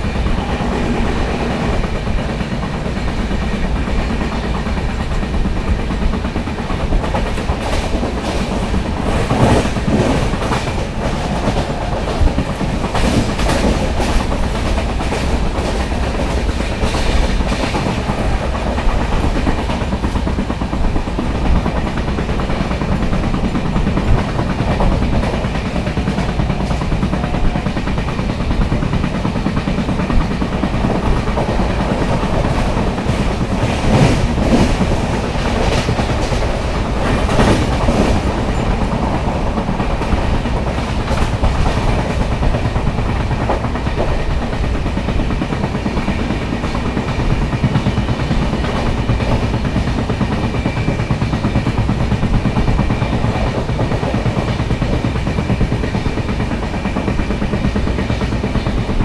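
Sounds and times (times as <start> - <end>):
train wheels clattering on rails: 0.0 - 59.0.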